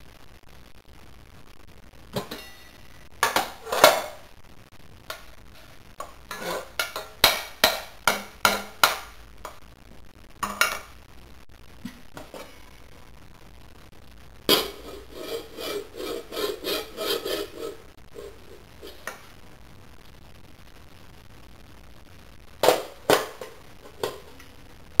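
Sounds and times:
pot lid scraping pan rim: 0:06.3 - 0:07.4, 0:14.5 - 0:19.2.

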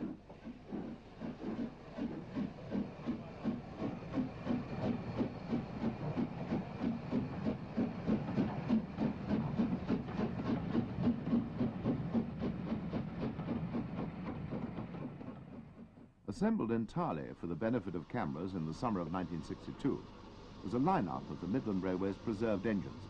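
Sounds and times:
steam hissing: 0:00.0 - 0:14.3, 0:17.2 - 0:23.0
steam locomotive rhythmic beat: 0:00.0 - 0:16.5, 0:17.3 - 0:23.0.

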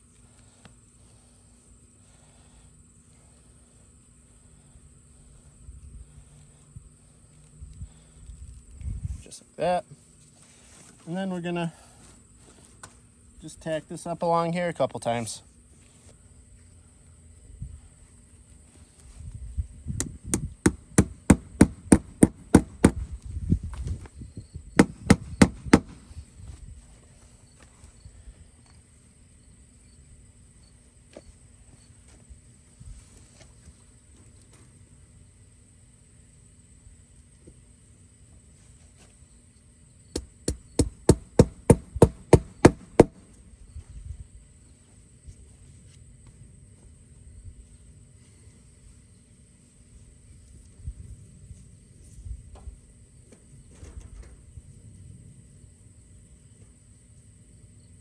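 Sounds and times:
hammer striking tack into wood: 0:20.0 - 0:23.0, 0:24.8 - 0:26.0, 0:40.2 - 0:43.2.

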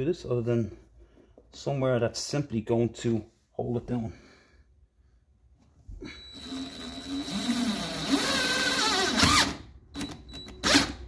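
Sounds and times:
cordless drill driving a screw: 0:06.2 - 0:11.0.

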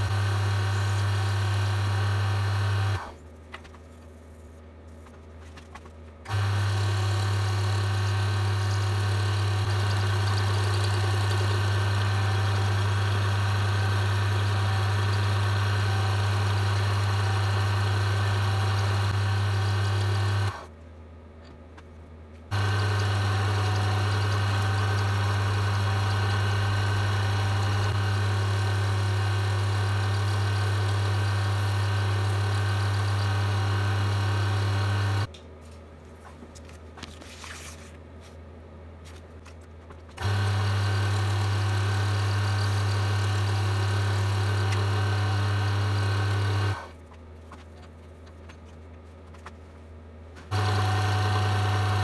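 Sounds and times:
wood lathe motor hum: 0:00.0 - 0:03.1, 0:22.5 - 0:35.3, 0:40.2 - 0:46.9, 0:50.5 - 0:52.0.

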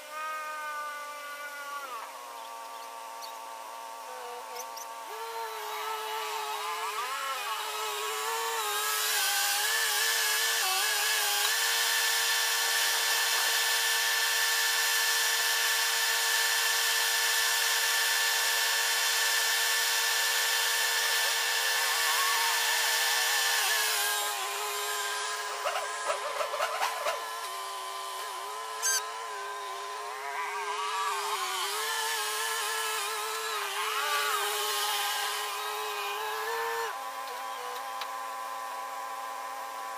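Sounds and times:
drone propellers whining: 0:20.3 - 0:38.1.

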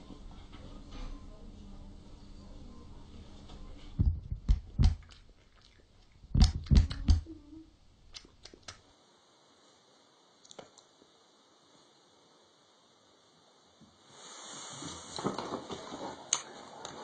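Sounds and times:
dull heavy thumps: 0:04.0 - 0:05.1, 0:06.3 - 0:07.3.

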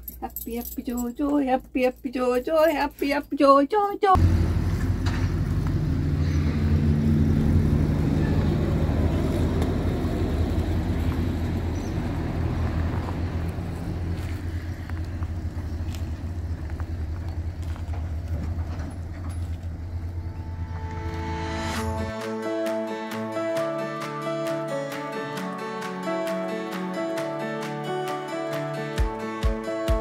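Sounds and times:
pickup truck engine running: 0:04.2 - 0:21.0.

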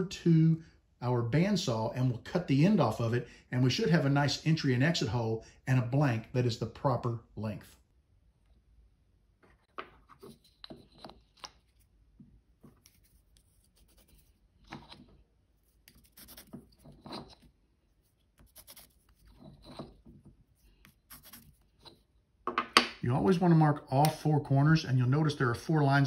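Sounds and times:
pencil scratching on wood: 0:12.6 - 0:22.0.

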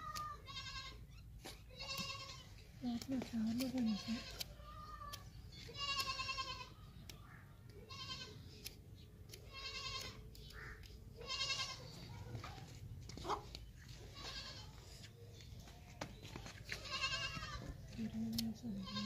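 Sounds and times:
goats bleating: 0:01.8 - 0:02.5, 0:11.2 - 0:12.0, 0:16.8 - 0:17.7.

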